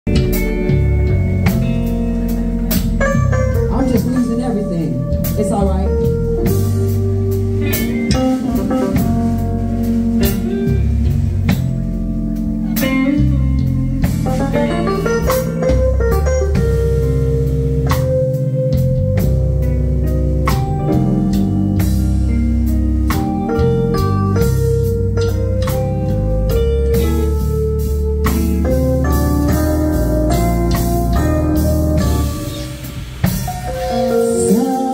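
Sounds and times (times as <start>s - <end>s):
bass line: 0.0s - 34.9s
drum and cymbal hits: 0.1s - 19.7s, 20.4s - 34.9s
electric guitar: 0.1s - 34.9s.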